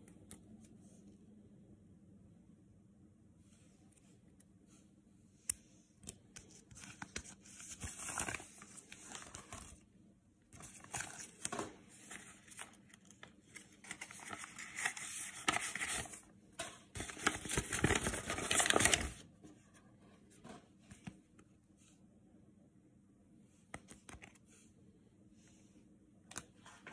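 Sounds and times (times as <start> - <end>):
plastic card sleeves rustling: 6.0 - 9.8, 10.6 - 16.2, 17.0 - 19.2.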